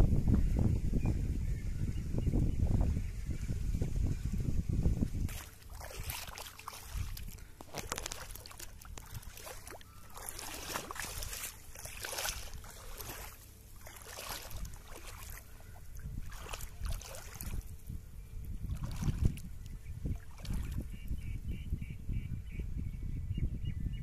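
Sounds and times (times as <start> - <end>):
muddy water splashing: 5.2 - 21.2.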